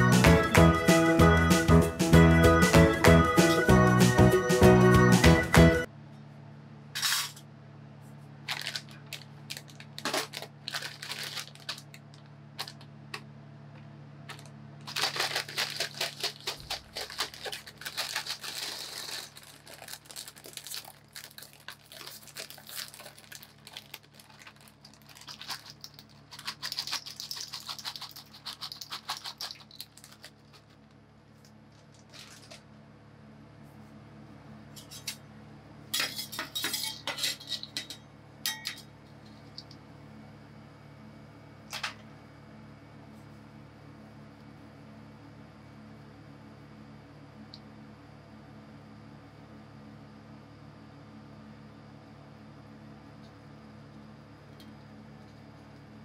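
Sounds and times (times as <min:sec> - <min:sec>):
low steady hum: 0:00.0 - 0:56.0
plastic snack bag crinkling: 0:08.4 - 0:12.9, 0:14.3 - 0:32.7.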